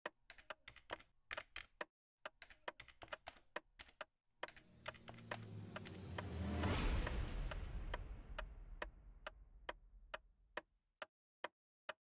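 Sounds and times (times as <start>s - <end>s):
computer keyboard typing clicks: 0.0s - 5.3s
rising whoosh: 4.6s - 9.7s.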